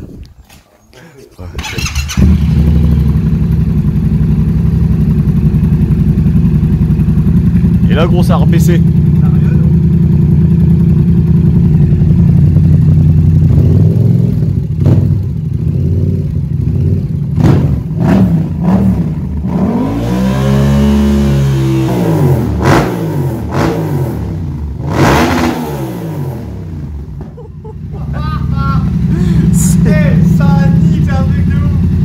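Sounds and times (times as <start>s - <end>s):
motorcycle engine idling and revving: 1.4s - 32.0s.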